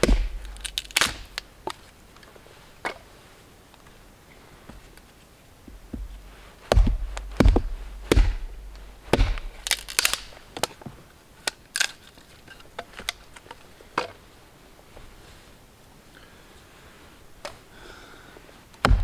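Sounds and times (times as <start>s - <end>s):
wood cracking and snapping: 0.0s - 1.5s, 9.1s - 10.8s, 11.5s - 13.5s
hatchet knocking against a log: 6.7s - 8.5s.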